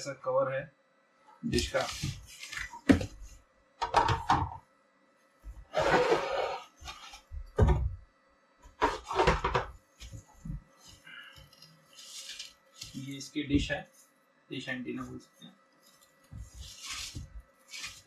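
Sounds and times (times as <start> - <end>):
rustling of foam and plastic: 1.6 - 3.4, 8.8 - 14.2, 14.9 - 18.0.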